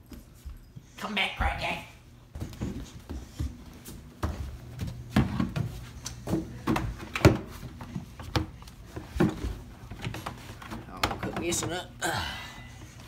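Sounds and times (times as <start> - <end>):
plastic laundry baskets knocking: 5.1 - 11.8.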